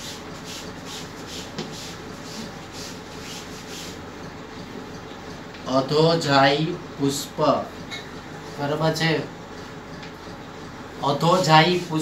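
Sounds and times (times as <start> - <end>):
chalk scratching on blackboard: 0.0 - 4.0, 11.2 - 12.0
chalk tap: 0.0 - 4.0.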